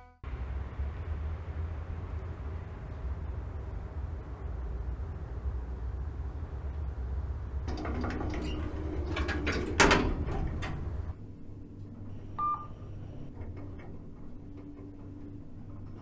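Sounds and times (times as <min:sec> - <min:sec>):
low rumble: 0:00.2 - 0:16.0
quiet hum: 0:00.3 - 0:16.0
knocks and rattles: 0:07.7 - 0:16.0
elevator electronic beep: 0:12.0 - 0:13.4.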